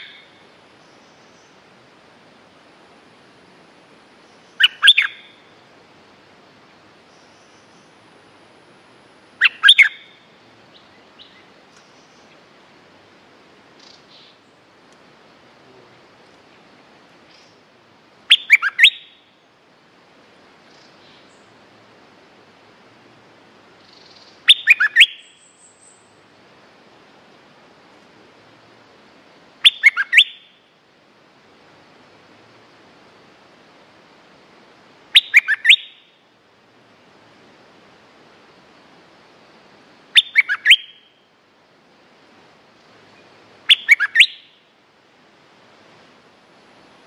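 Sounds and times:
bird calling: 0.0 - 1.6, 4.2 - 5.7, 9.4 - 12.4, 13.8 - 14.6, 18.3 - 19.5, 23.8 - 26.2, 29.6 - 30.7, 35.1 - 36.2, 40.1 - 41.4, 43.1 - 44.7.

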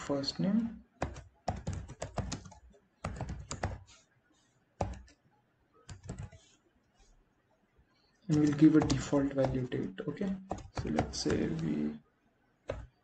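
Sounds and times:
typing on computer keyboard: 1.0 - 3.9, 4.8 - 5.2, 5.9 - 6.5, 8.3 - 9.7, 10.4 - 11.7, 12.7 - 13.0.

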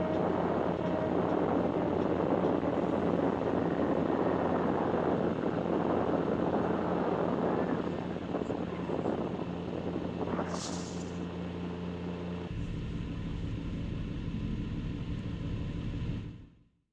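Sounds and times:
wind on microphone: 0.0 - 11.4
electric motor and propeller whirring: 0.0 - 16.4.

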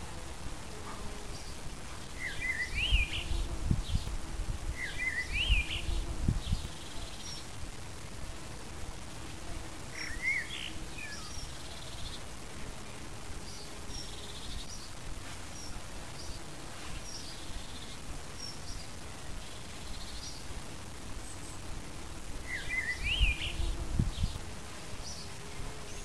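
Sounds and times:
bumblebee humming: 0.0 - 26.0
blackbird singing: 2.2 - 4.0, 4.8 - 7.5, 10.0 - 12.2, 22.5 - 24.3.

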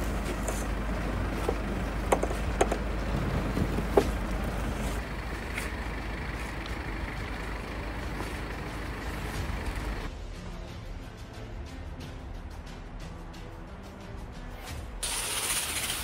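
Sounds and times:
brush sweeping snow: 0.0 - 1.8, 3.0 - 6.6, 15.0 - 16.0.

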